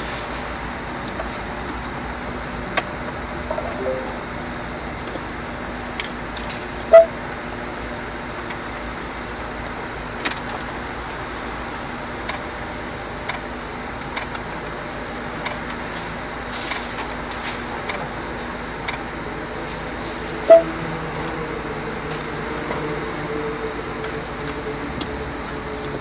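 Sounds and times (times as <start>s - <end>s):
short loud beep: 3.5s - 4.2s.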